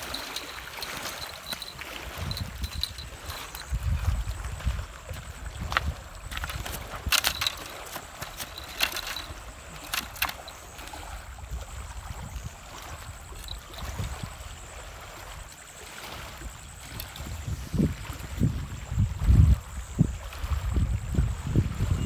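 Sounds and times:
sharp clicks and rustles: 0:00.0 - 0:03.7, 0:06.2 - 0:10.6
wind on microphone: 0:00.0 - 0:22.0.

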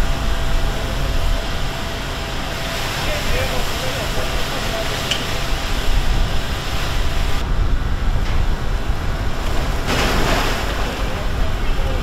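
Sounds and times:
hoses spraying water: 0:00.0 - 0:07.4
large fire rumbling: 0:00.0 - 0:12.0.

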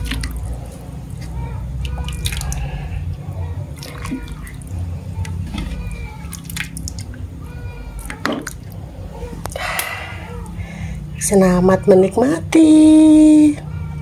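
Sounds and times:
broth dripping and splashing: 0:00.0 - 0:09.9.

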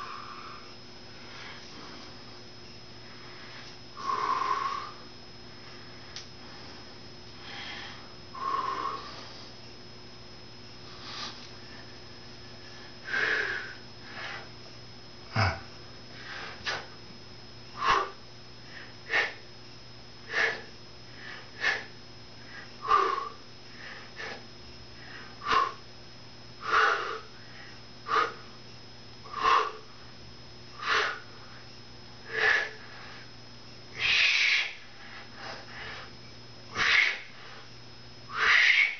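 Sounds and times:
man breathing forcefully: 0:03.0 - 0:09.6, 0:10.8 - 0:14.6, 0:15.3 - 0:17.0, 0:17.8 - 0:19.4, 0:20.2 - 0:25.9, 0:26.6 - 0:28.6, 0:29.3 - 0:30.0, 0:30.8 - 0:31.6, 0:32.2 - 0:33.3, 0:34.0 - 0:38.9.

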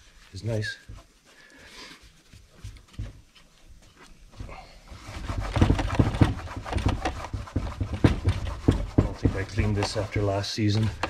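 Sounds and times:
rag rubbing chainsaw body: 0:04.9 - 0:11.0.

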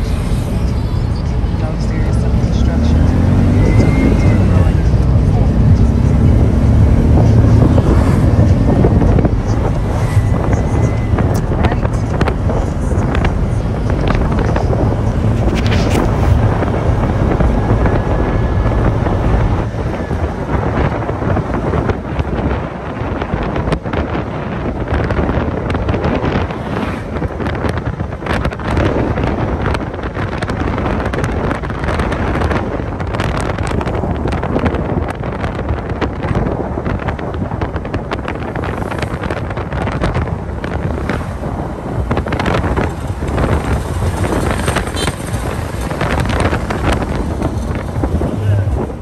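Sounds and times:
road and engine noise: 0:00.0 - 0:49.0
wind buffeting microphone: 0:00.0 - 0:49.0.

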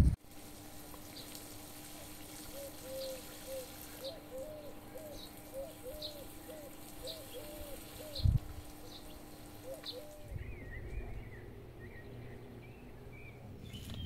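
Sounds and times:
water spraying from hose: 0:00.0 - 0:10.3
bird cooing: 0:02.4 - 0:13.4.

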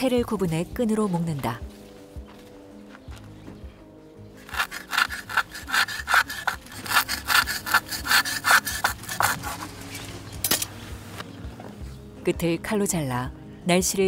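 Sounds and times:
rough rasping strokes on threads: 0:04.4 - 0:09.7.

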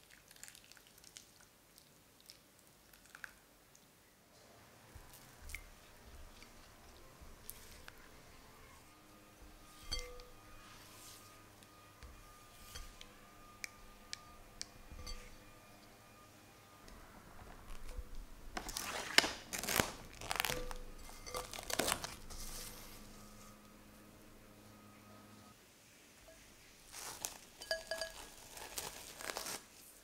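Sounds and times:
spatula stirring thick ganache: 0:04.9 - 0:23.6, 0:26.3 - 0:29.6
spatula tapping glass bowl: 0:09.4 - 0:16.0, 0:27.6 - 0:28.4
cling film crinkling: 0:18.5 - 0:23.0, 0:26.9 - 0:30.0.

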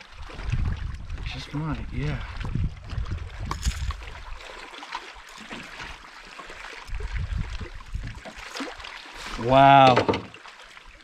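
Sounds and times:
wind rumbling on microphone: 0:00.0 - 0:04.5, 0:06.8 - 0:08.4
small waves lapping against boat: 0:00.0 - 0:11.0.

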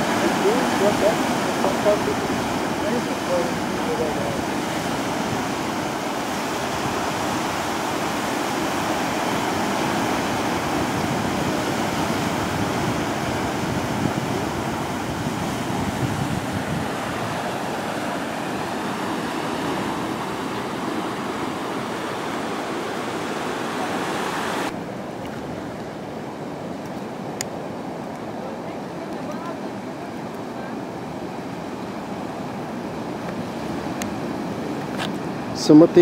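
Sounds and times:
surf breaking on rocks: 0:00.0 - 0:25.9.

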